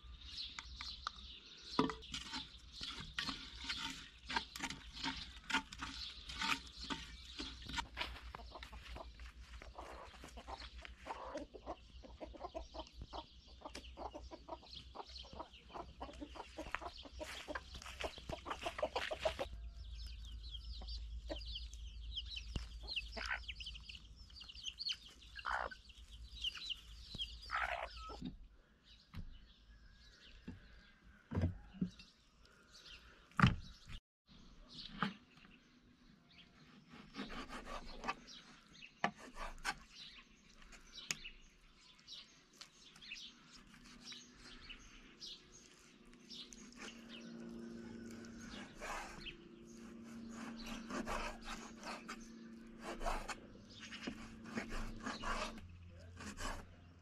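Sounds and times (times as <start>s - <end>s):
chickens clucking: 3.2s - 28.3s.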